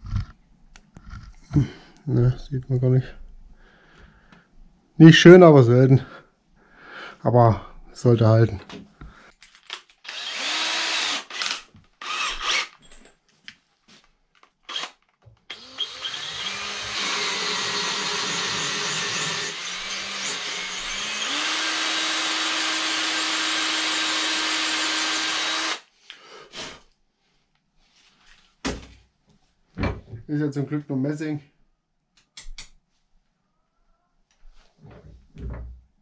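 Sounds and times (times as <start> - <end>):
cordless drill drilling into metal: 10.0 - 12.8, 14.7 - 25.9.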